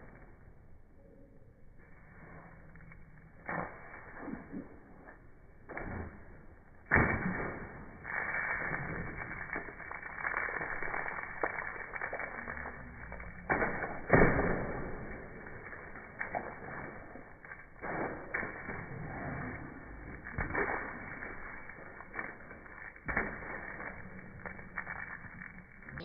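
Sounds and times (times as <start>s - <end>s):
water splashing: 7.0s - 26.0s.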